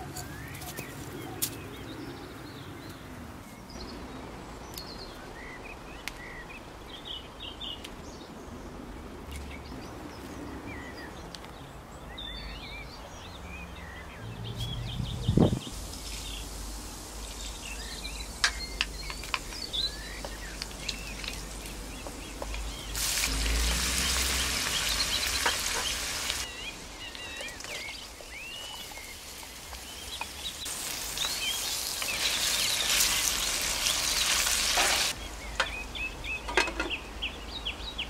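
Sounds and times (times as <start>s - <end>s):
birds chirping: 0.0s - 38.0s
seeds crackling in oil: 15.8s - 35.8s
hot oil sizzling in a wok: 22.4s - 26.8s, 27.6s - 35.2s.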